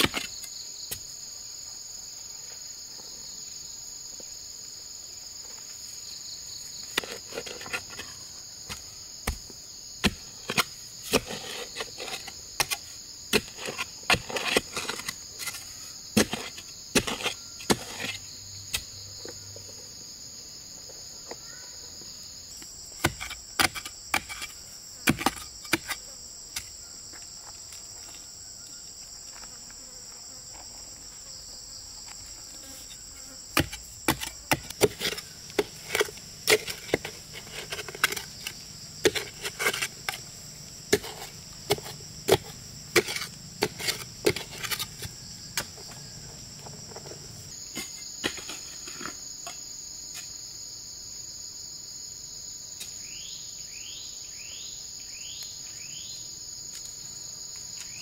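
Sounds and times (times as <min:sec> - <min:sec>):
insects chirring: 0:00.0 - 0:58.0
blade chopping wood: 0:08.7 - 0:15.6, 0:33.5 - 0:46.0.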